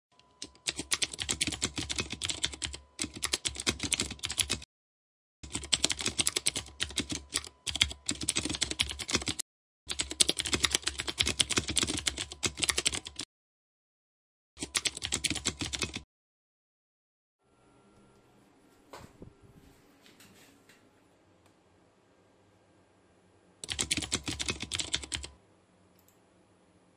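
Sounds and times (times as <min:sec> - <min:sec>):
rapid keyboard typing: 0:00.2 - 0:04.7, 0:05.4 - 0:13.3, 0:14.6 - 0:16.1, 0:23.6 - 0:25.4.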